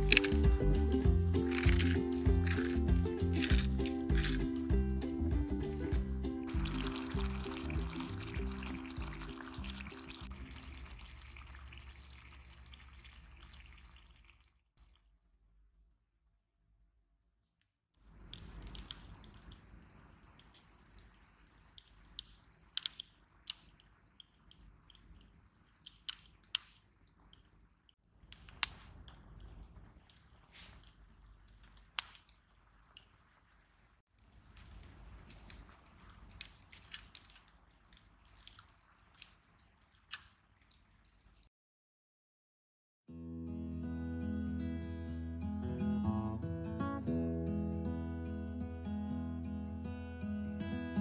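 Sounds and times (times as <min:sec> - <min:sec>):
campfire crackling and popping: 0:00.0 - 0:04.8, 0:06.5 - 0:10.3
food simmering in oil: 0:06.5 - 0:14.5.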